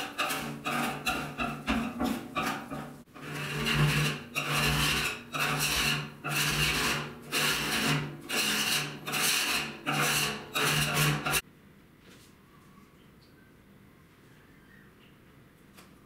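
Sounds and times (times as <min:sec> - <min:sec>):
scraper rasping on steel lid: 0:00.0 - 0:11.4.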